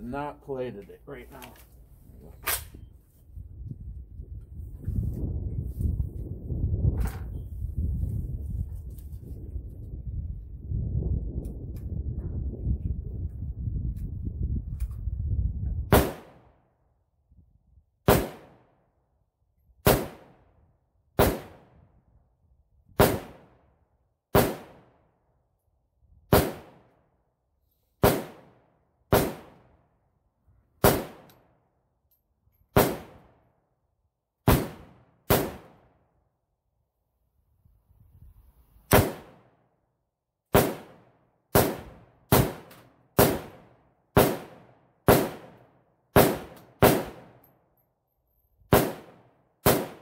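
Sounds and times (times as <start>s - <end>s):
rifle shots with echo: 15.9s - 16.6s, 18.1s - 18.8s, 19.8s - 20.6s, 21.2s - 21.8s, 23.0s - 23.6s, 24.3s - 25.1s, 26.3s - 26.9s, 28.0s - 29.8s, 30.8s - 31.4s, 32.8s - 33.4s, 34.5s - 35.9s, 38.9s - 39.6s, 40.5s - 47.4s, 48.7s - 50.0s.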